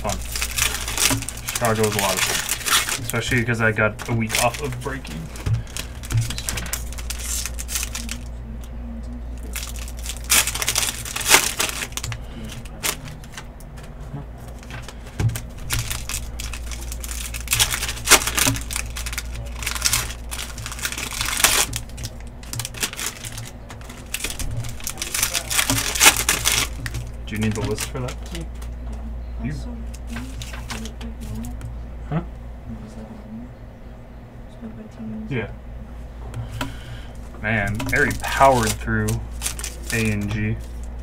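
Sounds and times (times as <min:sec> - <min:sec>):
foil wrappers crinkling and tearing: 0:00.0 - 0:08.4, 0:09.3 - 0:28.8, 0:29.9 - 0:31.6, 0:36.7 - 0:41.0
low steady hum: 0:00.0 - 0:41.0.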